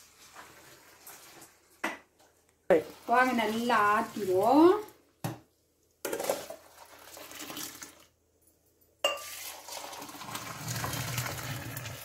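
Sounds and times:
coffee pouring and splashing: 0.0 - 1.9, 2.7 - 5.0, 6.0 - 8.2, 9.0 - 12.0.

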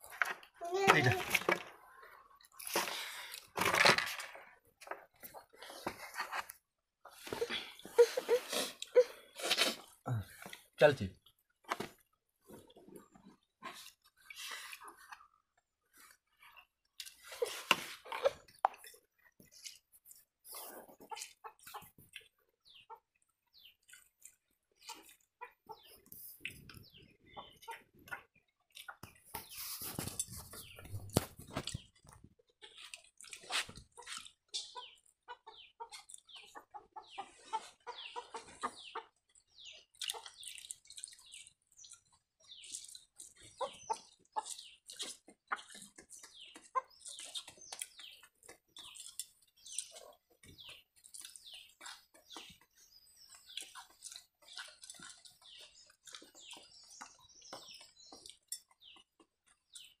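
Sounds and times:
slurping: 7.4 - 10.6
chewing and smacking: 31.6 - 35.2, 39.2 - 60.0.

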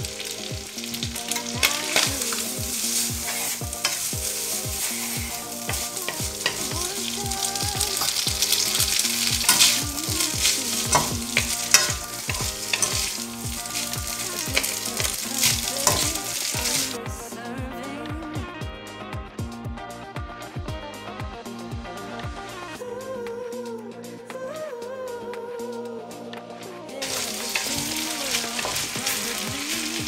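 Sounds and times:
spaghetti sizzling in hot oil: 0.0 - 17.0, 27.0 - 30.0
utensils clicking and scraping pan: 0.1 - 17.0, 27.0 - 30.0.

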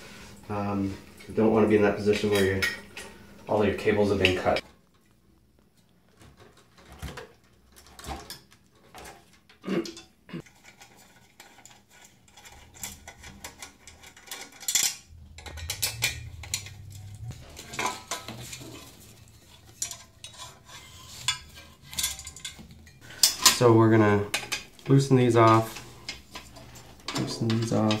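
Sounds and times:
metal parts clinking: 10.0 - 23.7.

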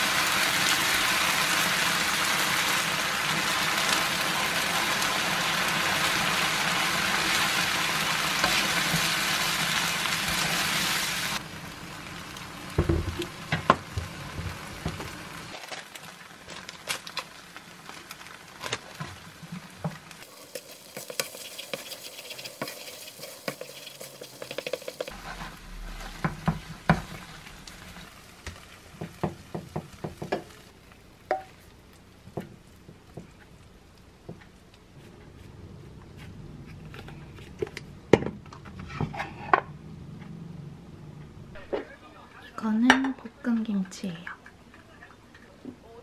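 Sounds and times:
porridge sizzling in a frying pan: 0.0 - 35.5
spatula scraping a pan: 20.3 - 27.2.

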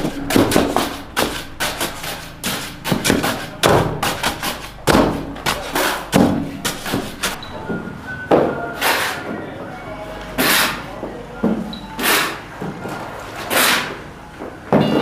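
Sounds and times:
heavy thuds and knocks: 0.0 - 7.8.

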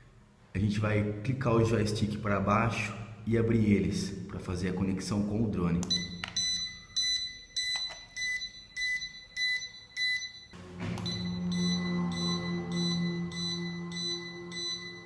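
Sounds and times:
high electronic beeps: 5.9 - 15.0
low hum: 10.6 - 15.0.

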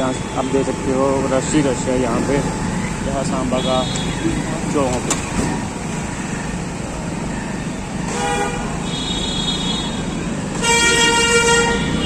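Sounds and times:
vehicle horns honking: 0.0 - 1.1, 3.4 - 4.5, 8.0 - 12.0
traffic engine and road noise: 0.0 - 12.0.

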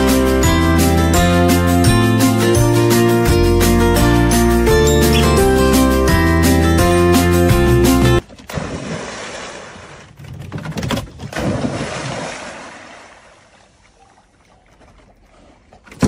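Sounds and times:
water splashing and churning: 8.2 - 16.0.

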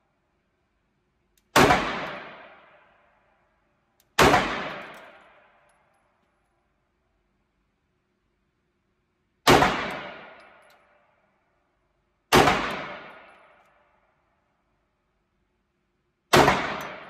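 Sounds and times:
pistol shots echoing indoors: 1.4 - 6.7, 9.4 - 14.6, 16.2 - 17.0.

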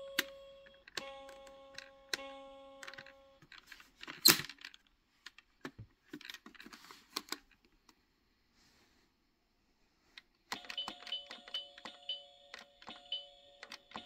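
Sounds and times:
electronic toy tones: 0.0 - 3.4.

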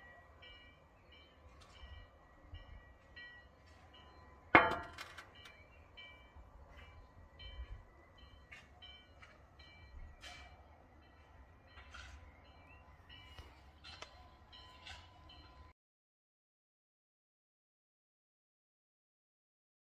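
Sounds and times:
glass clinking on glass table: 4.6 - 5.0.

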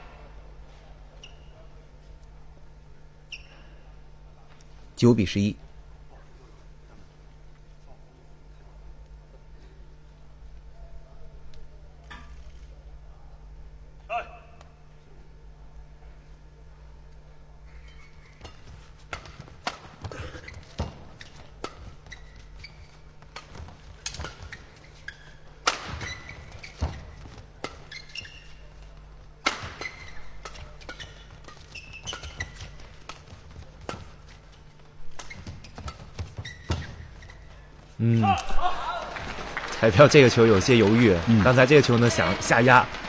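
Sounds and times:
shoe squeaks on court: 1.2 - 1.6, 3.2 - 3.8, 17.7 - 37.7
players' footwork: 17.7 - 43.0.

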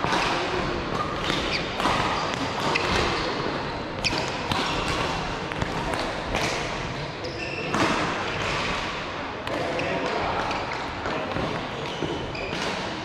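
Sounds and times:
racket hitting ball: 0.0 - 3.4, 4.0 - 6.8.

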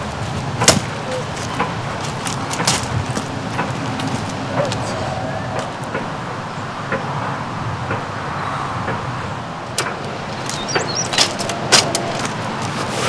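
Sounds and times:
camp furniture clicking and knocking: 0.0 - 4.8, 8.9 - 13.0
outdoor background noise: 0.0 - 13.0.

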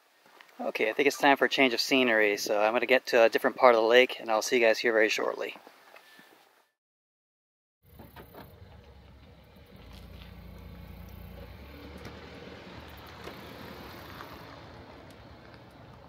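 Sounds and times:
low engine rumble: 7.9 - 16.0.

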